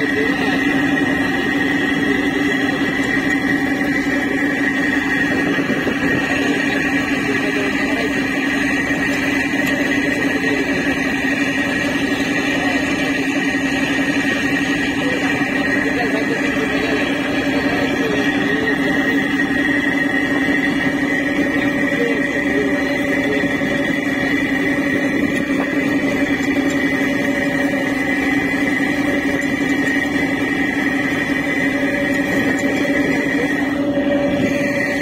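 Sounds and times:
boat engine drone: 0:00.0 - 0:35.0
wind: 0:00.0 - 0:35.0.

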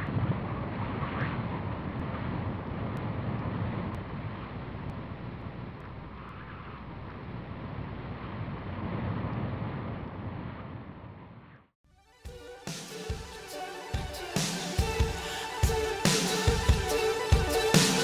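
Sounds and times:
low rushing wind noise: 0:00.0 - 0:11.4.

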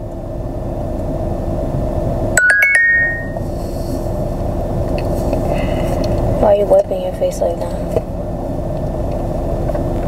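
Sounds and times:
electronic bell-like chime: 0:02.4 - 0:03.4.

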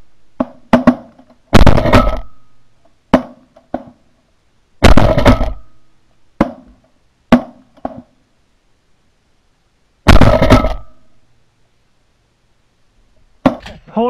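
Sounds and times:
sharp cracks: 0:00.4 - 0:04.0, 0:04.8 - 0:08.2, 0:10.0 - 0:11.2
shotgun blasts: 0:00.7 - 0:02.5, 0:04.8 - 0:05.8, 0:10.0 - 0:11.1.

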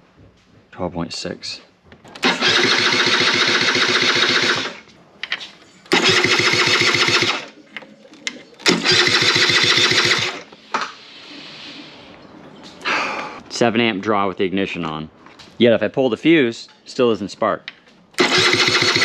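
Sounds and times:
scooter engine cranking: 0:02.2 - 0:04.9, 0:05.9 - 0:07.5, 0:08.6 - 0:10.5, 0:18.2 - 0:19.0.

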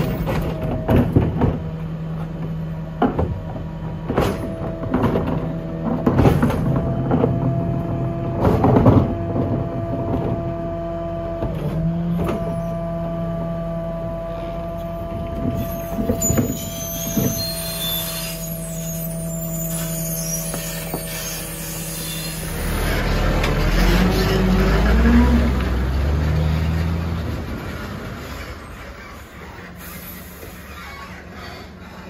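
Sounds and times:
garbage truck engine and hydraulics: 0:00.0 - 0:32.0.

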